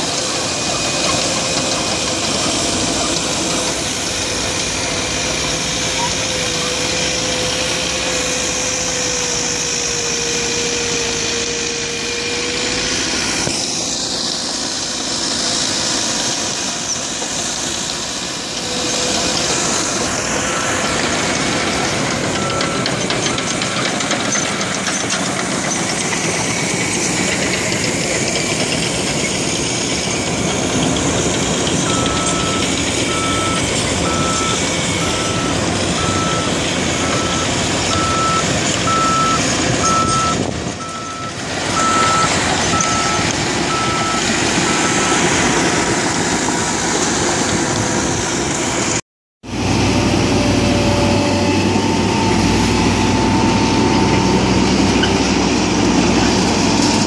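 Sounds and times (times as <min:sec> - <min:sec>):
bulldozer diesel engine running: 0:00.0 - 0:57.0
back-up alarm beeping: 0:31.8 - 0:45.4.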